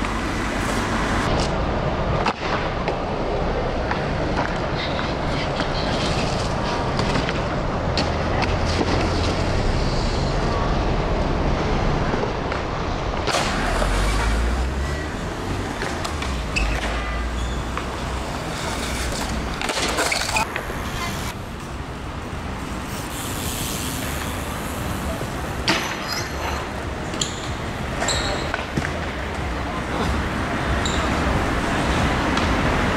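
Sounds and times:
street traffic: 0:00.0 - 0:32.9
wheels rolling on concrete: 0:03.6 - 0:32.9
boards hitting the ground: 0:15.7 - 0:20.7.

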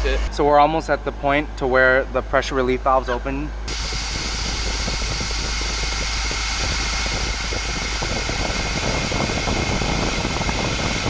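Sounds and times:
air rushing from valve: 0:03.7 - 0:11.0.

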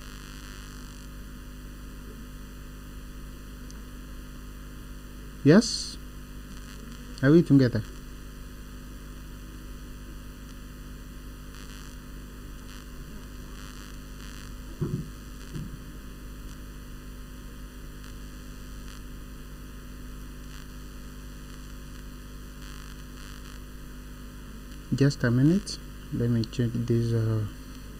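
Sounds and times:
background hiss: 0:00.0 - 0:01.1, 0:05.4 - 0:08.9, 0:09.9 - 0:23.7, 0:24.8 - 0:27.9
electrical mains hum: 0:00.0 - 0:27.9.

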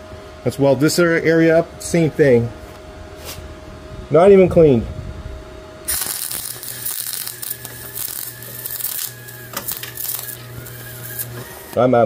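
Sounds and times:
welder hum: 0:00.0 - 0:12.0
welder arc crackling: 0:05.9 - 0:12.0.

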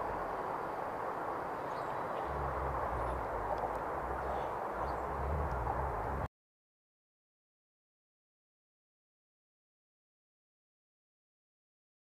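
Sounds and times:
steady rushing noise: 0:00.0 - 0:06.3
wind rumble on microphone: 0:00.0 - 0:06.3
faint bird chirps: 0:01.5 - 0:06.3.

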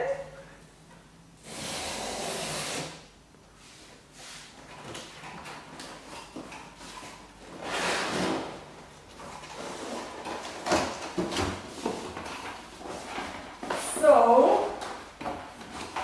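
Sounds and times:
packing tape ripping off cardboard: 0:01.4 - 0:03.1.

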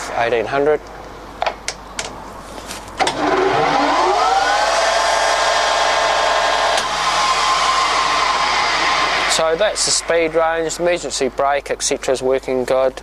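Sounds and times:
lathe gears whining: 0:03.0 - 0:11.3.

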